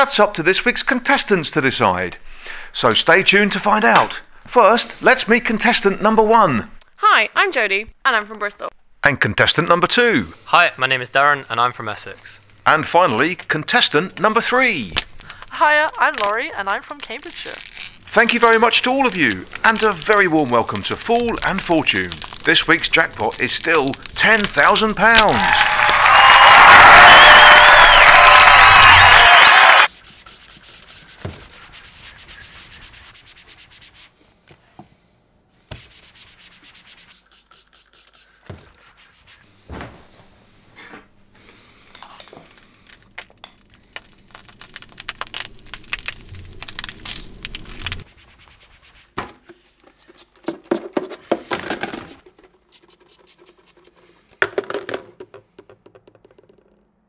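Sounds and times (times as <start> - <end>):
spoon scraping a bowl: 49.7 - 50.5, 52.6 - 54.4.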